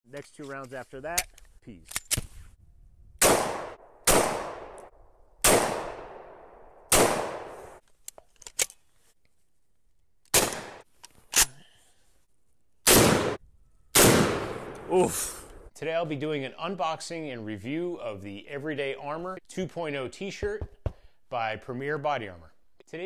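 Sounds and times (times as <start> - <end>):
gunshots with echo: 3.2 - 4.8, 5.4 - 7.8, 10.4 - 10.8, 12.9 - 13.4, 14.0 - 15.0.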